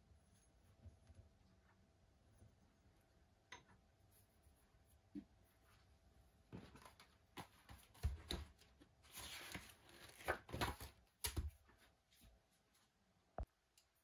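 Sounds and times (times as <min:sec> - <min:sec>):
paper rustling: 0:06.5 - 0:11.9.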